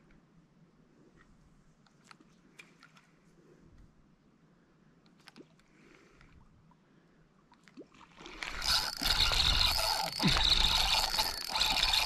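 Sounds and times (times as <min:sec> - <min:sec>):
fishing rod handling noise: 0:08.4 - 0:12.0
spinning reel cranking: 0:08.4 - 0:12.0.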